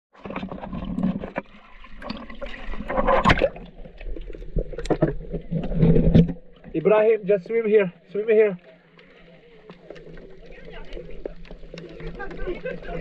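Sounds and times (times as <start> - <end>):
water sloshing and gurgling: 0.1 - 13.0
water splashes: 0.1 - 13.0.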